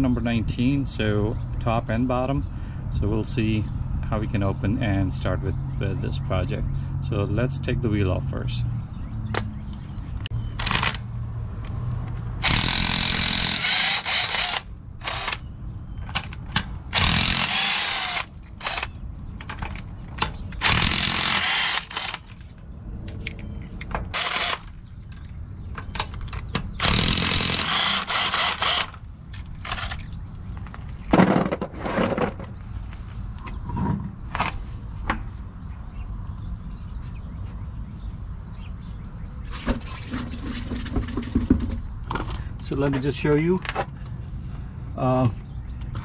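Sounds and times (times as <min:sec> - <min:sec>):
impact wrench bursts: 0:12.4 - 0:15.4, 0:16.9 - 0:19.0, 0:20.6 - 0:22.4, 0:24.1 - 0:24.8, 0:26.8 - 0:29.0.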